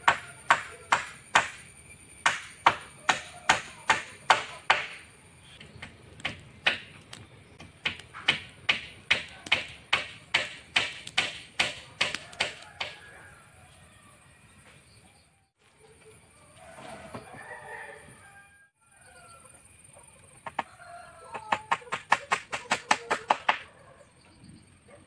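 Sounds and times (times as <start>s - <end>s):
hammer striking nails into wood: 0.0s - 1.6s, 2.2s - 5.0s, 7.8s - 13.0s.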